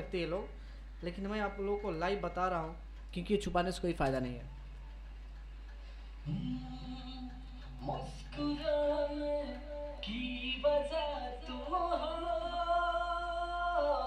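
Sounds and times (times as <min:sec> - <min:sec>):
person singing with vocal effects: 0:06.2 - 0:14.0.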